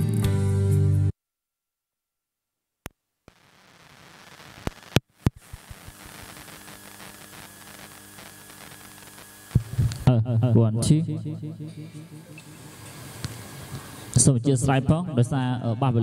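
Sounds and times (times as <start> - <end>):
sharp clicks and pops: 2.8 - 10.1
steady hiss: 3.3 - 10.2, 12.1 - 15.5
faint hum: 3.3 - 16.0.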